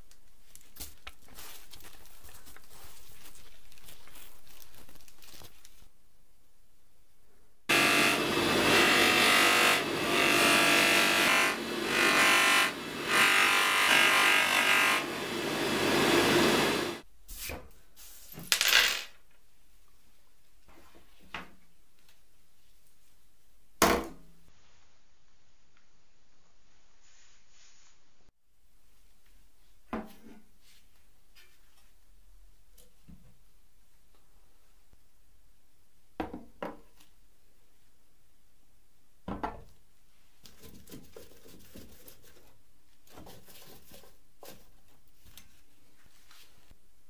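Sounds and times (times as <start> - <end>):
polisher motor hum: 7.7 - 14.2, 14.9 - 17.0.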